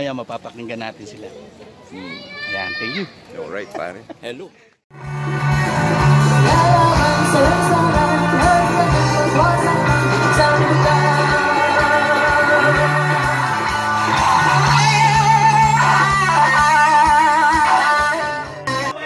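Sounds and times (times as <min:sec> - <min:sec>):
rock band playing: 0:04.9 - 0:19.0
person singing: 0:05.4 - 0:19.0.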